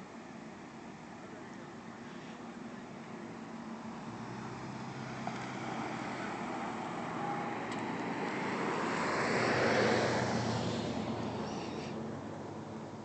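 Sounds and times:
car driving past: 4.0s - 12.3s.

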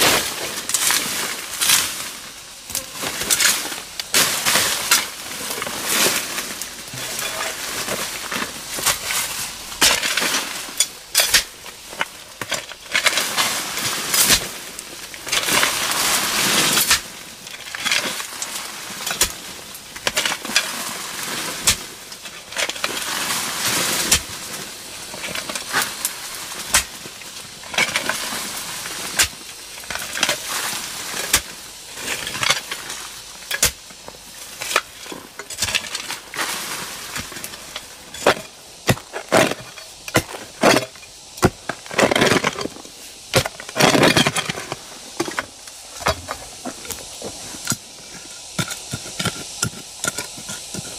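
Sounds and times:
earth and dry leaves rustling: 0.0s - 50.9s
digging tool chopping into soil: 26.7s - 27.0s, 33.6s - 33.8s, 38.2s - 40.8s.

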